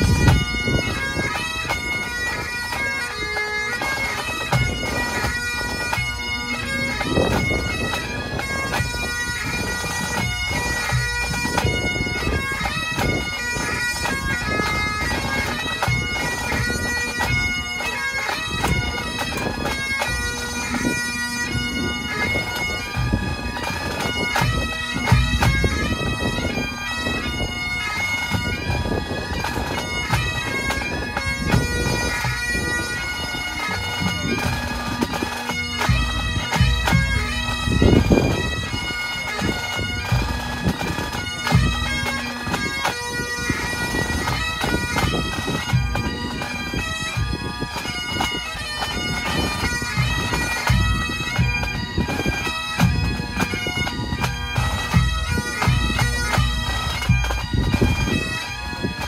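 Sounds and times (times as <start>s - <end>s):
bagpipes playing melody: 0.0s - 59.0s
pipe band drums: 0.0s - 59.0s.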